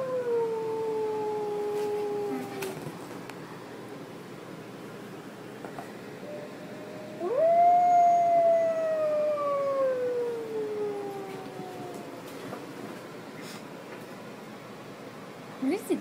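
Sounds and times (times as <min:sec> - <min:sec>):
recorded wolf howl: 0:00.0 - 0:02.8, 0:06.8 - 0:12.6.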